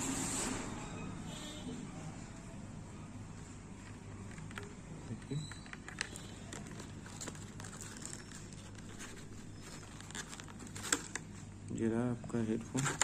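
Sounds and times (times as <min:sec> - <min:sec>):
plastic packaging rustling: 0:03.8 - 0:11.6, 0:12.2 - 0:13.0.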